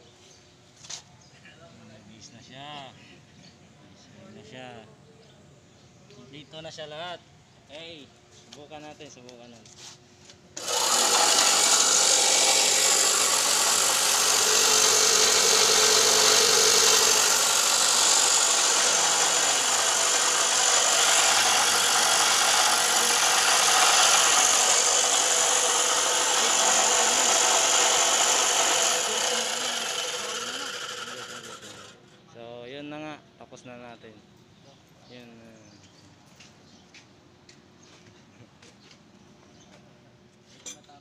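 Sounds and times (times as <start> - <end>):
cut-off disc grinding metal rod: 10.6 - 32.1.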